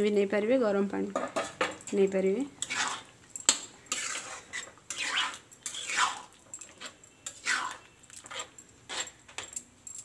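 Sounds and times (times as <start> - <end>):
spatula stirring watery gravy: 2.6 - 9.2.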